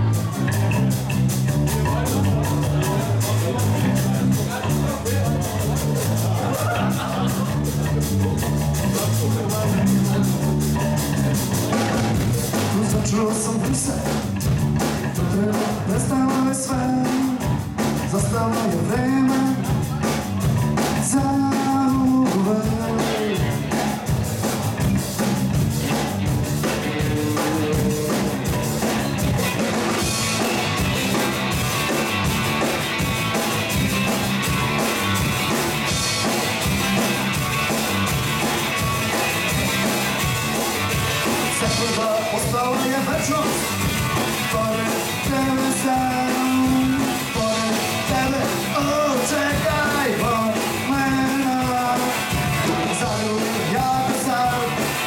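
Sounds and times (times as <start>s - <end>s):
rock band playing live: 0.0s - 55.0s
person singing: 12.5s - 24.6s, 26.8s - 28.6s, 41.3s - 55.0s.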